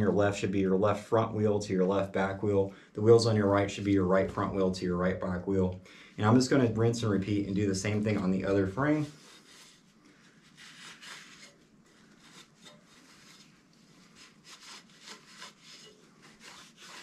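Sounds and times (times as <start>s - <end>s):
rag scrubbing metal frame: 7.0s - 17.0s.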